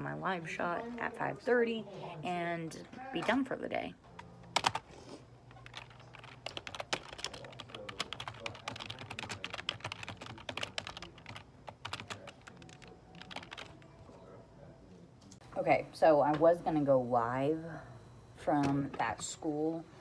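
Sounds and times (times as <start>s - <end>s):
fast typing on keyboard: 4.6s - 4.8s, 5.6s - 13.9s.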